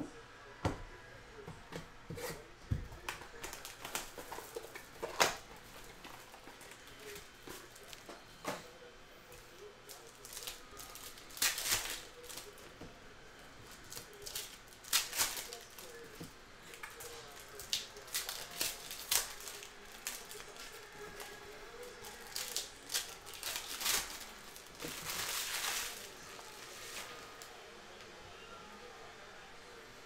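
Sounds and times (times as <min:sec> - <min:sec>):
foil packs tearing and crinkling: 0:03.0 - 0:08.1, 0:09.9 - 0:12.7, 0:13.8 - 0:27.2.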